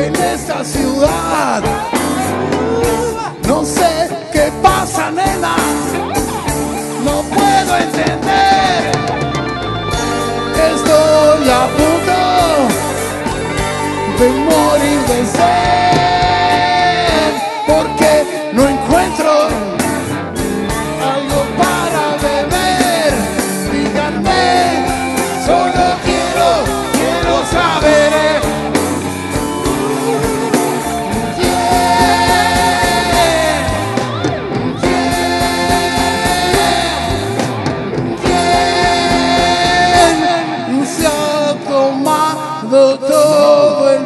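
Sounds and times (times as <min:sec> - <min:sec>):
man singing: 0:00.0 - 0:09.3, 0:10.2 - 0:28.9, 0:31.0 - 0:34.2, 0:34.8 - 0:37.6, 0:38.2 - 0:44.0
electric bass: 0:00.0 - 0:42.8
drums: 0:00.0 - 0:44.0
electric guitar: 0:00.0 - 0:44.0.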